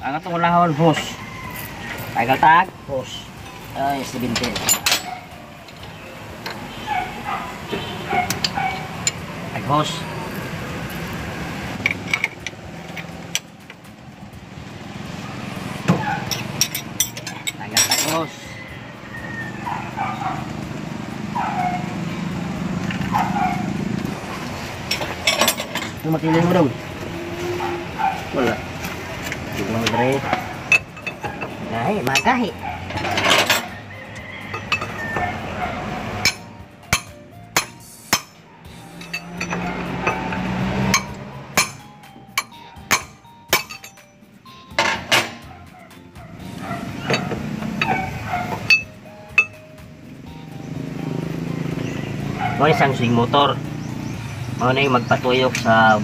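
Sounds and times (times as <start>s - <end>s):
wrench clinking on metal fittings: 3.5s - 6.6s, 16.2s - 18.4s, 24.9s - 26.5s, 29.2s - 33.8s, 34.5s - 35.0s, 36.2s - 45.4s, 47.1s - 49.6s
dog barking: 5.0s - 5.3s, 6.8s - 8.9s, 19.6s - 20.5s, 21.4s - 22.0s, 23.1s - 23.8s, 27.5s - 28.4s, 30.0s - 30.7s, 32.6s - 33.2s, 35.2s - 36.0s, 45.4s - 48.7s, 52.3s - 52.8s.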